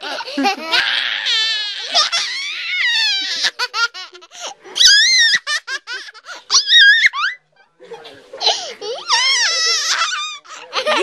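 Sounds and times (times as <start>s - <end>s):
little girls laughing: 1.8s - 7.4s, 8.4s - 11.0s.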